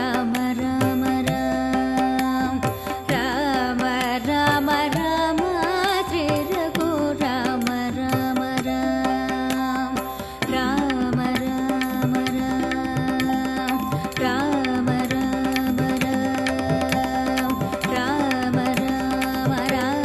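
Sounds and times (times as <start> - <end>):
devotional song melody: 0.0 - 20.0.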